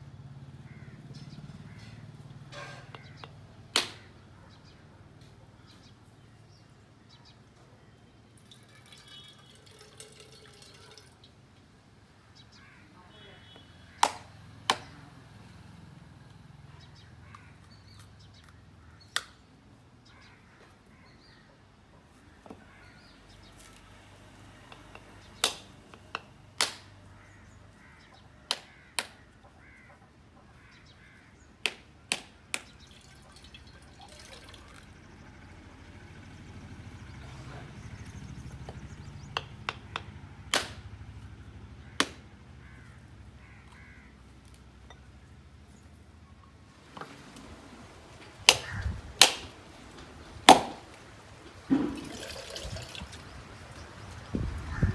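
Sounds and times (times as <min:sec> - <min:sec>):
knife striking coconut shells: 0:02.9 - 0:04.0, 0:24.7 - 0:26.9, 0:31.6 - 0:32.7, 0:39.3 - 0:40.8, 0:48.5 - 0:49.5, 0:50.5 - 0:50.9.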